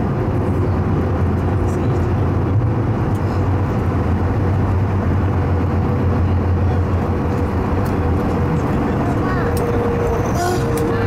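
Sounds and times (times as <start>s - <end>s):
jet engines idling: 0.0s - 11.0s
low cabin hum and rumble: 0.0s - 11.0s.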